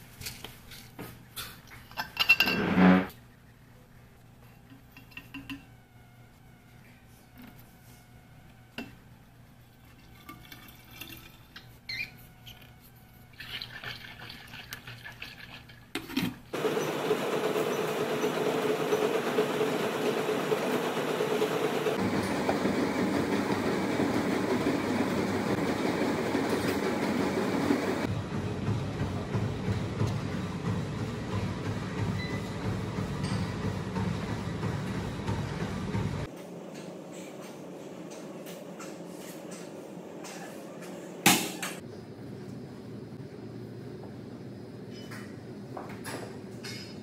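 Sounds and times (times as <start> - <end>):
stair-climber machine rumble: 16.6 - 36.3.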